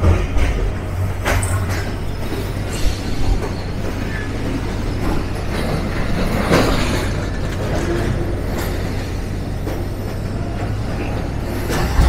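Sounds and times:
train running gear knocks: 0:00.0 - 0:08.9, 0:11.6 - 0:12.0
train rumbling on track: 0:00.0 - 0:12.0.

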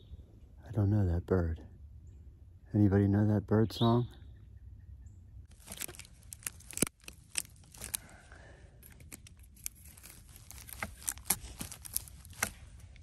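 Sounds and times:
pine cones and twigs crackling: 0:05.5 - 0:13.0.

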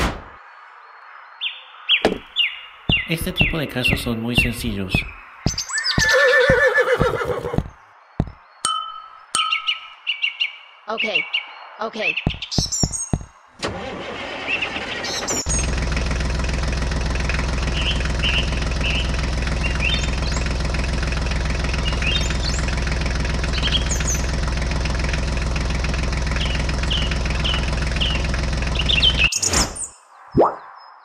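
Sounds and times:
birds chirping: 0:00.2 - 0:13.6, 0:14.4 - 0:15.9, 0:17.0 - 0:31.0
tractor engine running: 0:02.9 - 0:08.4, 0:12.3 - 0:29.3.

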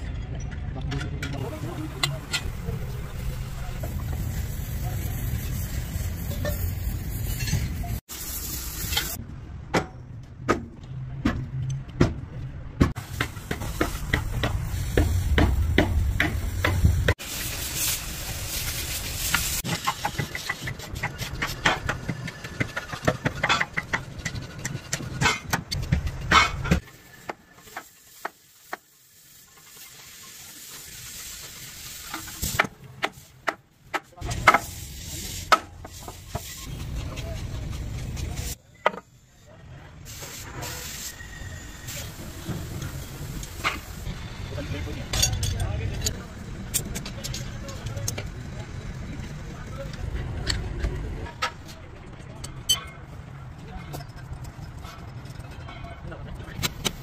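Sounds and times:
hissing noise: 0:13.0 - 0:21.7, 0:40.0 - 0:44.7.

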